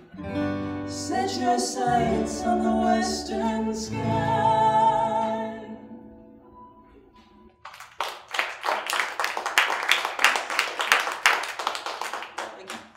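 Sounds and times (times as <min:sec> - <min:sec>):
person singing: 0:00.9 - 0:06.0
audience clapping: 0:07.6 - 0:12.9.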